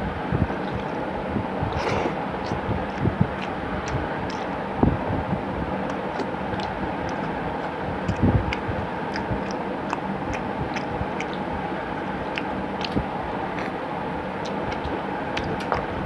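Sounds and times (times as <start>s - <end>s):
chewing: 0.6s - 1.0s, 1.7s - 4.7s, 5.8s - 15.9s
fingers mixing rice on a plate: 2.4s - 4.7s, 5.8s - 15.9s.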